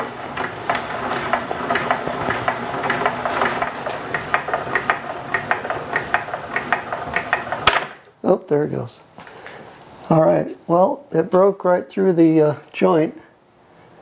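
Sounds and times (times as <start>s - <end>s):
hand crank clicking: 0.0s - 8.0s.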